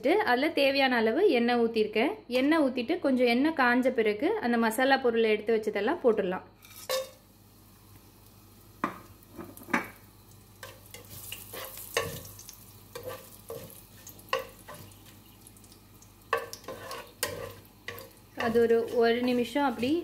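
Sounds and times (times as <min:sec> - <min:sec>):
spices sizzling in oil: 0:06.6 - 0:20.0
wooden spatula scraping pot: 0:12.9 - 0:15.0, 0:16.3 - 0:20.0.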